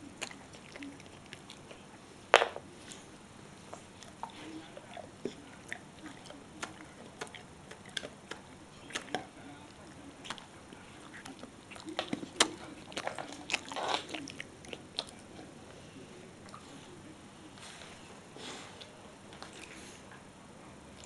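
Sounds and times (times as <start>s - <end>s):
dog chewing crunchy snack: 4.0s - 15.6s.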